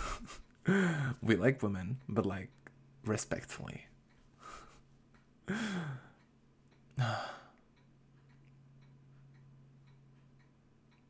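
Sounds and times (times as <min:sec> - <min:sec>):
low steady hum: 0:00.0 - 0:11.0
faint regular ticking: 0:00.2 - 0:11.0
man sighing: 0:00.7 - 0:01.2, 0:05.5 - 0:06.2, 0:07.0 - 0:07.6.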